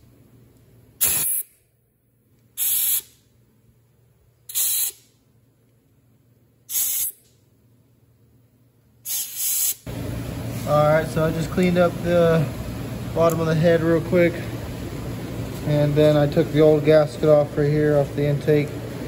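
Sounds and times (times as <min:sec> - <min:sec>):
compressed air blow gun blasts: 0:01.0 - 0:01.6, 0:02.6 - 0:03.2, 0:04.5 - 0:05.1, 0:06.7 - 0:07.2, 0:09.0 - 0:09.9.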